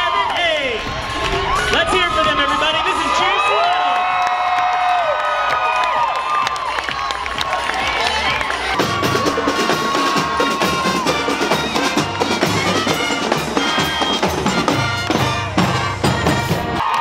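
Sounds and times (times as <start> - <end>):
drums beating: 0.6 - 16.9
marching band playing: 6.3 - 16.9
brass horns: 7.5 - 16.9.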